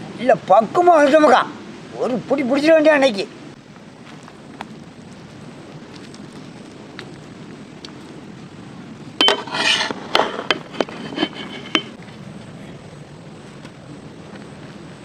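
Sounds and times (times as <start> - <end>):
metal utensil clinking on pot: 9.2 - 11.9.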